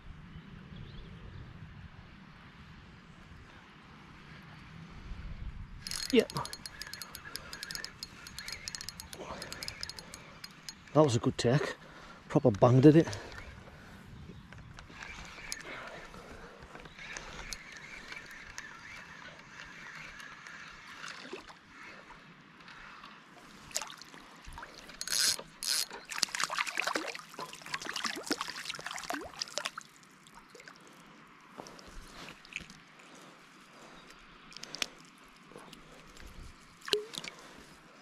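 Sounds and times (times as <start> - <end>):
fishing reel clicking whirr: 5.8 - 10.9, 14.8 - 15.8, 16.7 - 21.2, 24.8 - 26.5
fish splashing: 23.7 - 30.8.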